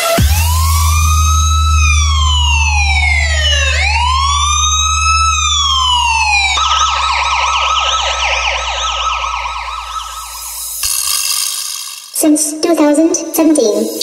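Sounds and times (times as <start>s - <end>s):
steady low bass hum: 0.0s - 10.8s
electronic police siren: 0.0s - 11.9s.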